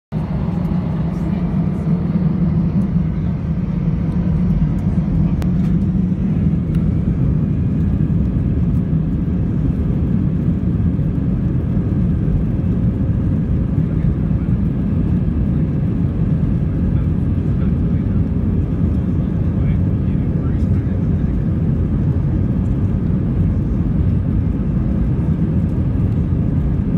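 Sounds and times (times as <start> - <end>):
jet engine hum in cabin: 0.1 - 26.9.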